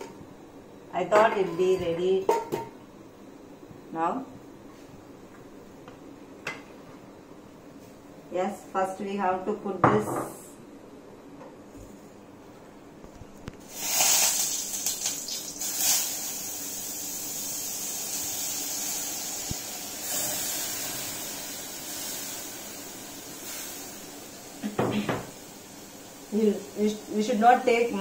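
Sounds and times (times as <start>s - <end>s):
spices sizzling in hot oil: 13.7s - 28.0s.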